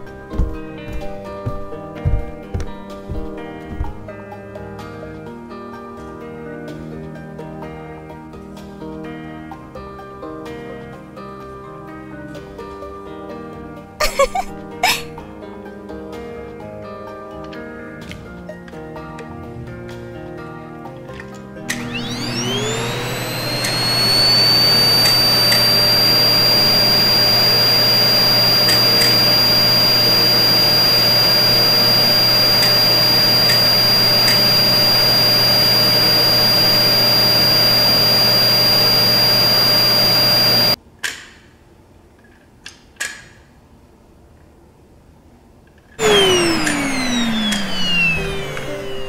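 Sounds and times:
toy vacuum motor whirring: 14.0 - 15.0, 21.7 - 40.8, 46.0 - 49.0
loud falling-pitch sound: 21.7 - 40.8, 46.0 - 49.0
small clicks: 21.7 - 40.8.

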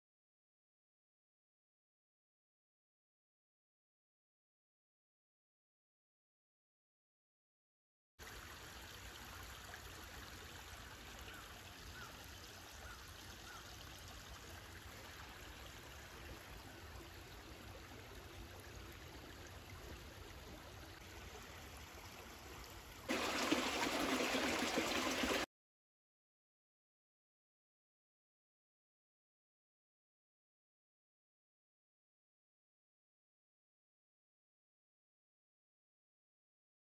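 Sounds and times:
creek trickling over stones: 8.2 - 25.5.

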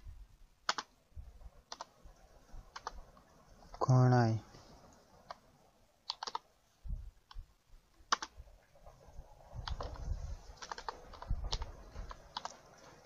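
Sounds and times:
keyboard key clicks: 0.7 - 0.9, 2.7 - 3.0, 6.1 - 6.4, 8.1 - 8.4, 9.6 - 10.0, 10.6 - 12.6
low dull thuds: 1.1 - 3.2, 6.8 - 13.0.

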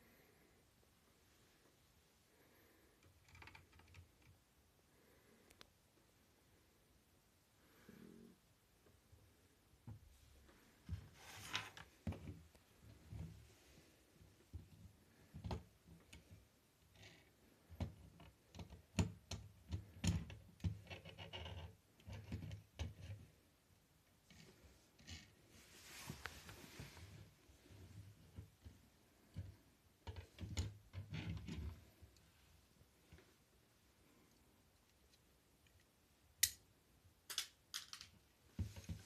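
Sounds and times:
plastic bricks clicking on wooden table: 37.3 - 38.2.

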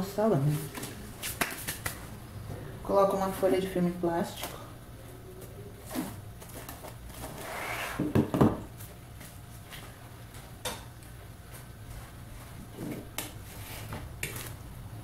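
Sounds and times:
knocks on countertop: 8.0 - 8.7.

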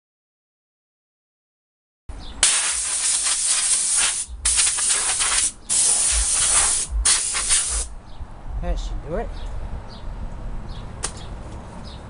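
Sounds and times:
compressed air blow gun hissing: 2.4 - 7.9.

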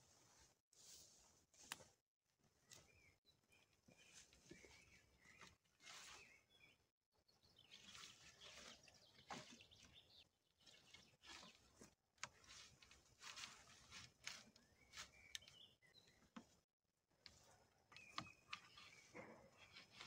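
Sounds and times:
small bird chirps: 2.6 - 11.9, 14.3 - 16.5, 17.4 - 20.0
pine branches rustling: 4.0 - 6.5, 7.7 - 9.8, 10.6 - 15.6.

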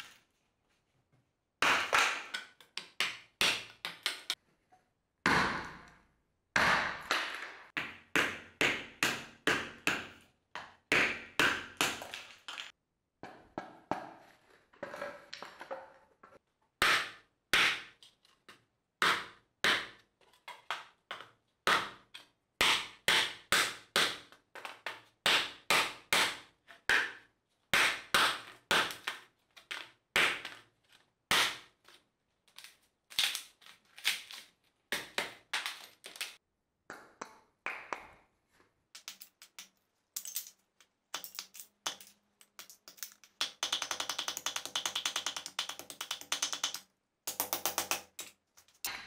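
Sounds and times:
hatchet chopping wooden board: 1.6 - 4.4, 5.2 - 5.9, 6.6 - 12.4, 16.8 - 18.0, 19.0 - 20.0, 21.7 - 22.0, 22.6 - 24.3, 25.2 - 27.2, 27.8 - 29.2, 30.2 - 30.6, 31.3 - 31.7.

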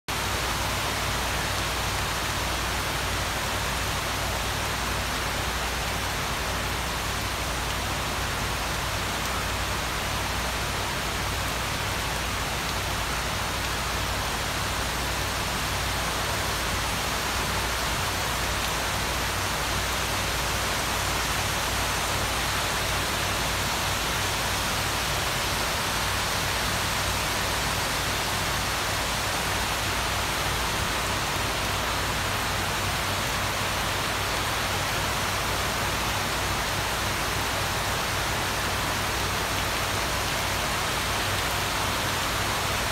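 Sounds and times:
heavy rain on trees: 0.1 - 42.9.

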